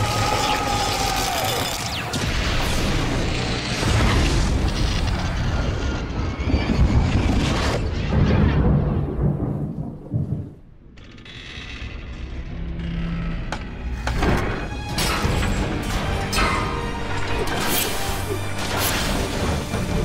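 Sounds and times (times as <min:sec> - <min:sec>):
heavy rumble: 0:02.2 - 0:14.4.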